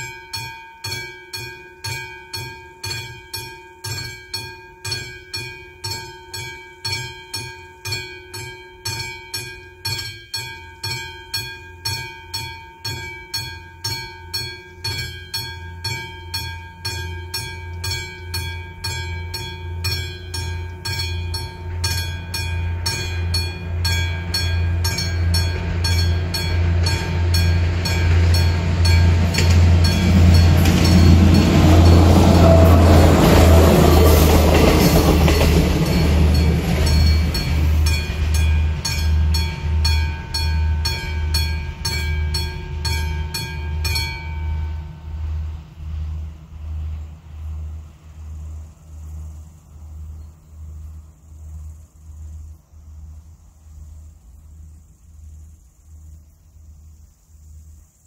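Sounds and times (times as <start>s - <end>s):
level-crossing warning bell: 0.0s - 46.3s
diesel train rumbling: 10.6s - 56.1s.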